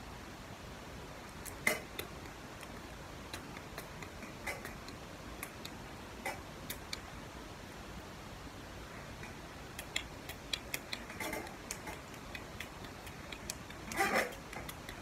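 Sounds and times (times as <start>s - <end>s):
faint steady hiss: 0.0s - 15.0s
light clicks and taps: 9.2s - 15.0s.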